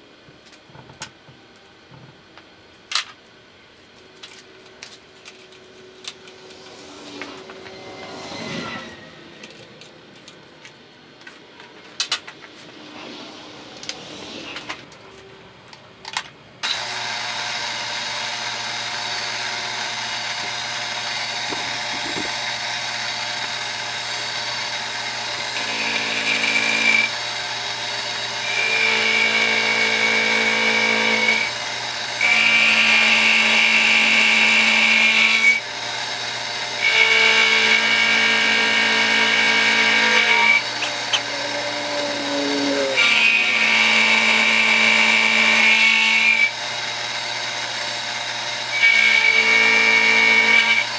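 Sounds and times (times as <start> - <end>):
end mill cutting steel: 4.1 - 15.7, 16.6 - 50.9
milling machine spindle humming: 16.6 - 50.9.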